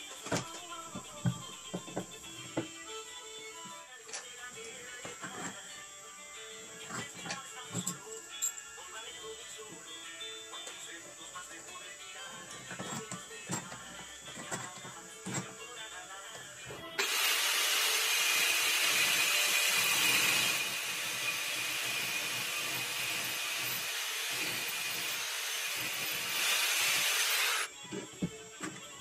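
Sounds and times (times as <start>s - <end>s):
rotary tool grinding steel: 4.8s - 8.6s, 16.9s - 27.8s.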